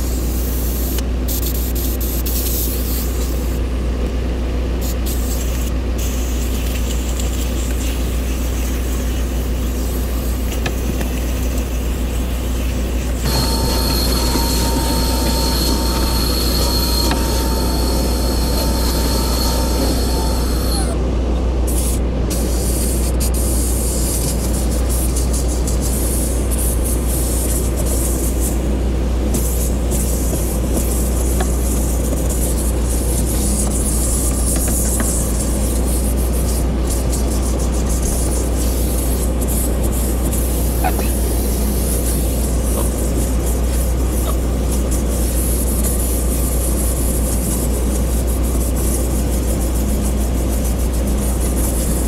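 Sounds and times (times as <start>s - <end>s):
steam cleaner hissing: 5.1s - 21.0s
vacuum whining: 13.0s - 21.6s.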